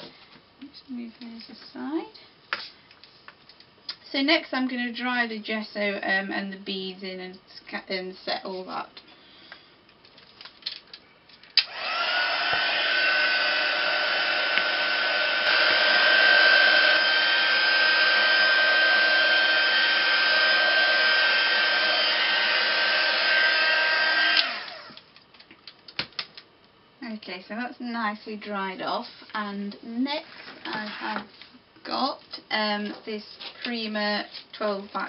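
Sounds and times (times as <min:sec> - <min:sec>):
heat gun fan whine: 0:11.5 - 0:25.4.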